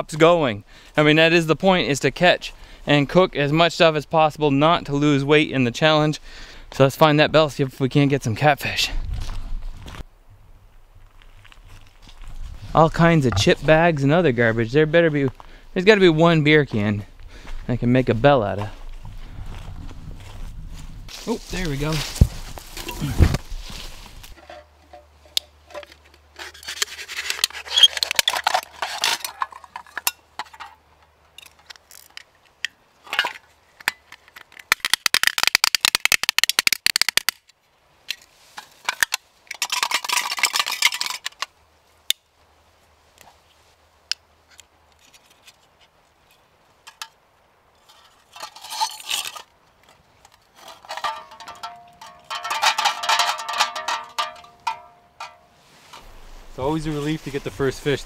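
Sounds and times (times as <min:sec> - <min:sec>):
can crumpling by hand: 0:25.7 - 0:30.1, 0:33.2 - 0:37.4.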